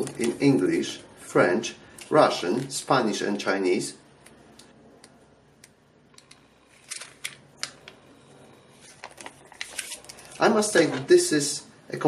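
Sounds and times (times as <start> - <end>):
paper pages flipping: 0.0 - 0.5, 6.7 - 8.0, 8.7 - 11.1.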